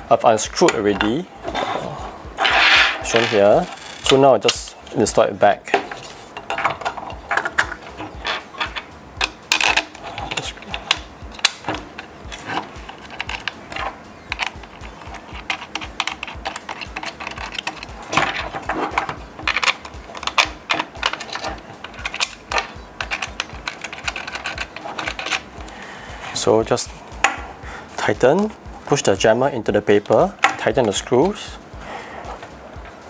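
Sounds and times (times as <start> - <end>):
clamp parts clicking and knocking: 5.7 - 25.8, 30.0 - 31.4.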